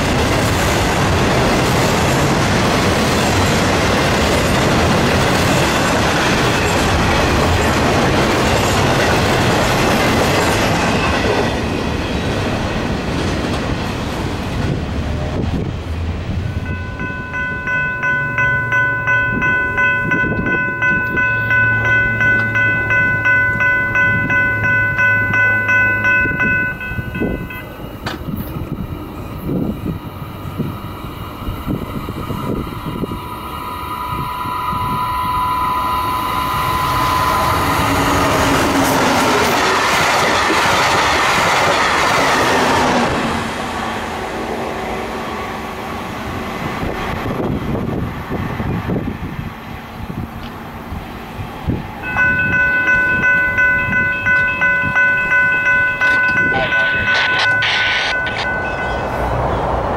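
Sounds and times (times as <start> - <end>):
freight train rumble and clatter: 0.0 - 35.5, 36.1 - 59.9
pulsing ringing tone: 16.6 - 28.0, 32.8 - 38.6, 52.0 - 59.4.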